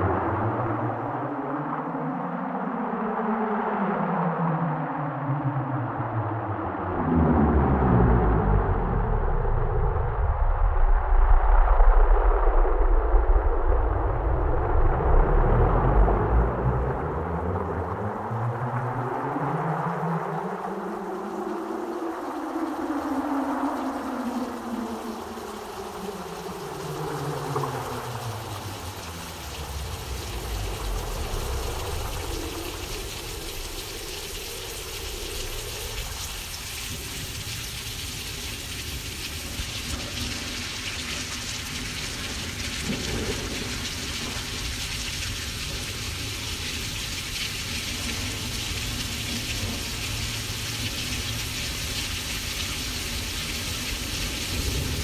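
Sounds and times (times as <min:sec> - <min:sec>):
synthesized rain hiss: 0:00.0 - 0:55.0
low rumble: 0:06.0 - 0:19.2, 0:26.1 - 0:38.2.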